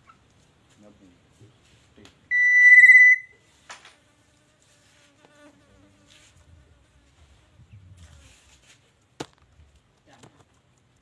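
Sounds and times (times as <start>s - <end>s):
bird whistling with warble: 2.3s - 3.4s.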